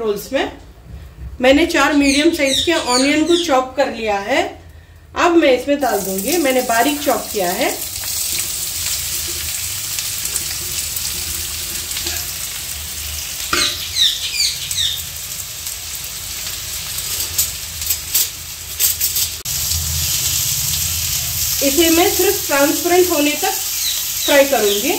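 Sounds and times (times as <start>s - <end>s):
onions sizzling in hot oil: 5.8s - 24.9s.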